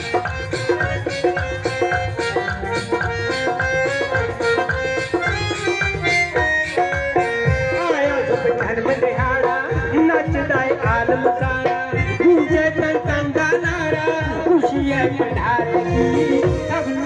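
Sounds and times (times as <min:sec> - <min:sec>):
melody of held notes: 0:00.0 - 0:09.1, 0:15.5 - 0:17.0.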